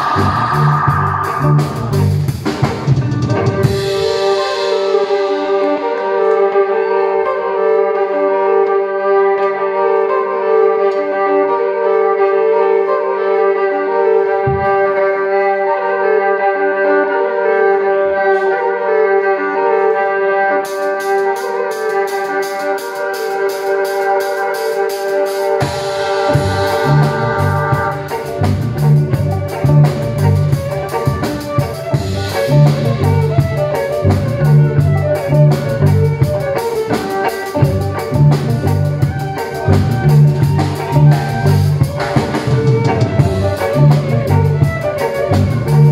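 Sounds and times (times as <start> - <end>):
drum kit heavy low beat: 0.0 - 5.9, 24.9 - 45.9
amplified violin with effects: 0.0 - 45.9.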